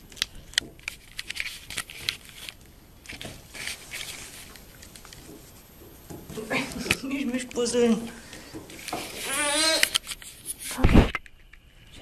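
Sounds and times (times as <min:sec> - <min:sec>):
camera handling crackling: 0:00.1 - 0:05.2, 0:08.7 - 0:11.6.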